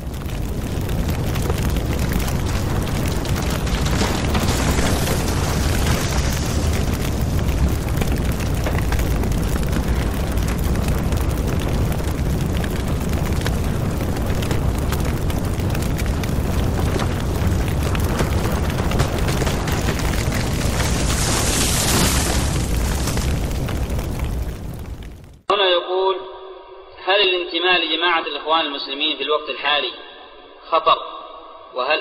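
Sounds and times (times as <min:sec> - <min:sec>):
wildfire rumbling and crackling: 0:00.0 - 0:25.5.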